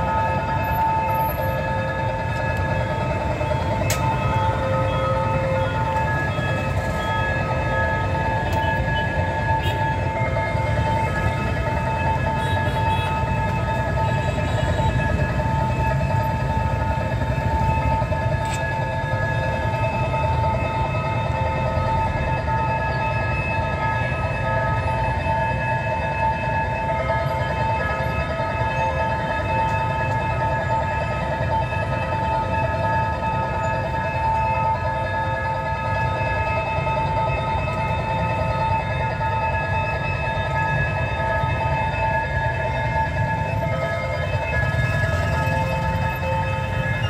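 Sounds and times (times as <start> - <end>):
level crossing alarm tone: 0.0 - 47.0
traffic rumble: 0.0 - 47.0.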